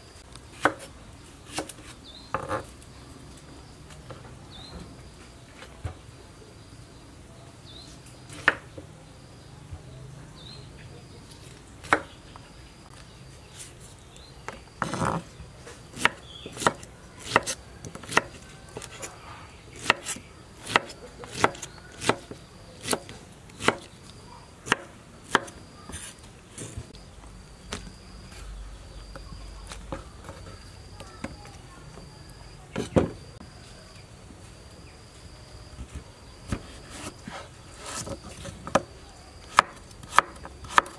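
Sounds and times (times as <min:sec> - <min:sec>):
knife chopping on wooden board: 0:16.0 - 0:19.0, 0:19.8 - 0:23.9, 0:24.7 - 0:26.1, 0:39.5 - 0:40.9.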